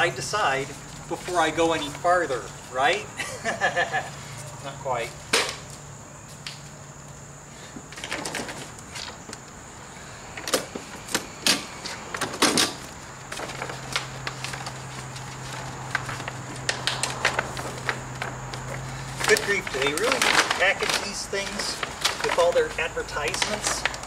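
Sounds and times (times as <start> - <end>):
plastic and metal parts rattling: 16.8 - 22.6.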